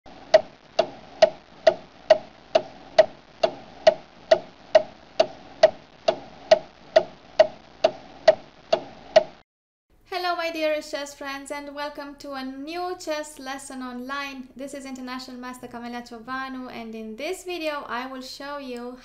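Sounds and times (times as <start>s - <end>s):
clock ticking: 0.2s - 9.4s.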